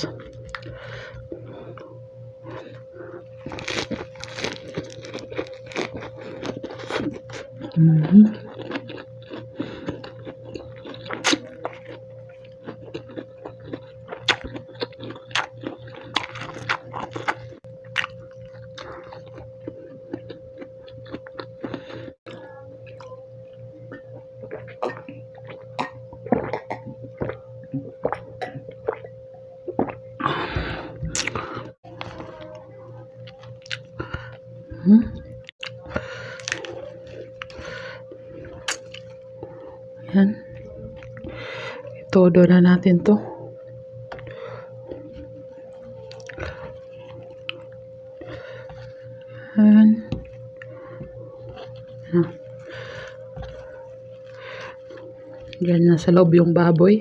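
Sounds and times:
crisp crunching and chewing: 0.0 - 29.1, 31.1 - 42.2, 43.6 - 49.5, 50.1 - 55.7
faint steady hum: 0.0 - 57.0
water gulping and swallowing: 23.8 - 32.5.

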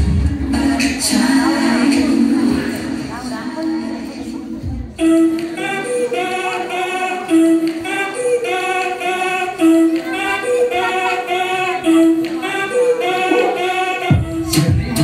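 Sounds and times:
high voice-like melody: 5.0 - 15.0.

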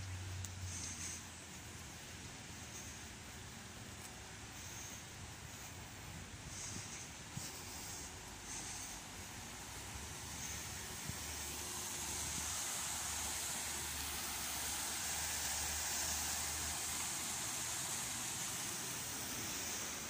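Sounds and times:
fountain water splashing: 11.0 - 20.0.

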